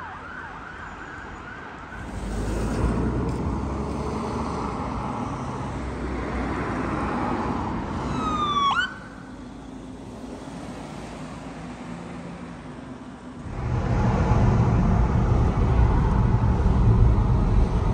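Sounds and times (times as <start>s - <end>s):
siren wail: 0.0s - 2.1s, 8.1s - 9.3s
road and engine noise: 0.0s - 17.9s.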